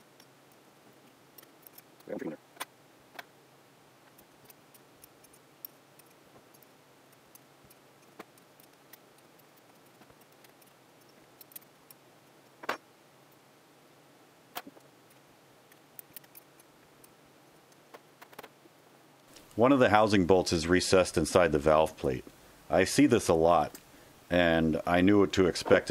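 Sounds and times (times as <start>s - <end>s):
wrench clicking on bolts: 1.4s - 2.1s, 4.1s - 12.0s, 15.7s - 16.7s.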